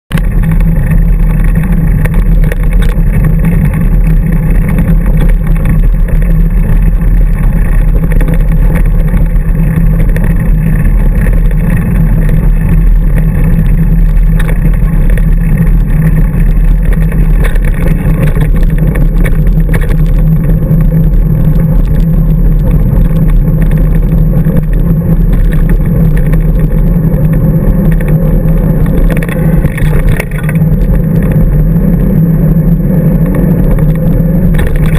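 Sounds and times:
bike tyre and frame rattle: 0.1 - 34.9.

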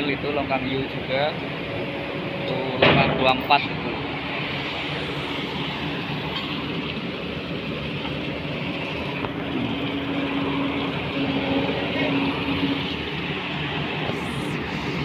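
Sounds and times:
excavator diesel engine running: 3.6 - 15.0.

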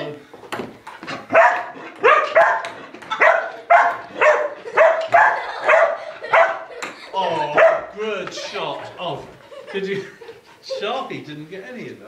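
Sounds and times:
dog barking: 1.3 - 6.7, 7.5 - 8.0.

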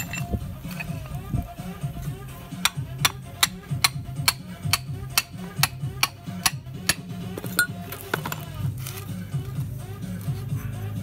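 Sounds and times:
hammer striking metal pin: 2.6 - 7.7.

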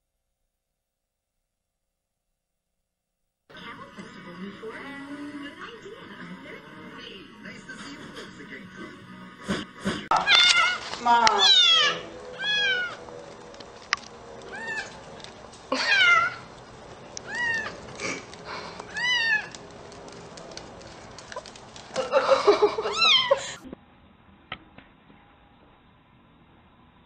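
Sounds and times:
kitten meowing: 10.1 - 13.0, 14.5 - 14.9, 15.8 - 16.4, 17.3 - 17.8, 18.9 - 19.5, 22.9 - 23.4.

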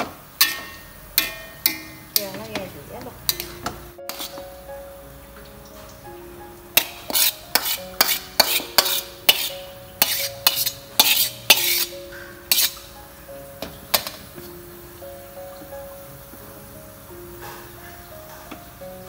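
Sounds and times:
background music: 0.4 - 19.0
metal spatula scraping a wok: 3.3 - 4.4, 6.8 - 12.9.

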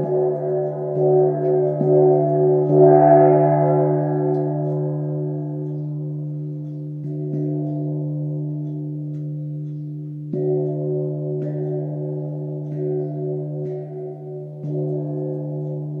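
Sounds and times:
gong struck with felt mallet: 0.0 - 9.5.

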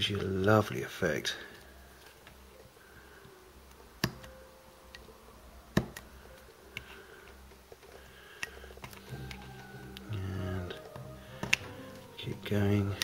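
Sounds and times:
plastic pieces snapping off: 10.8 - 11.8.

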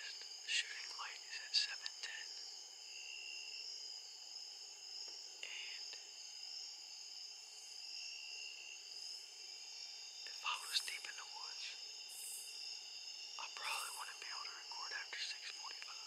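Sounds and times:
insects trilling: 0.0 - 16.0
short insect calls: 0.0 - 16.0.

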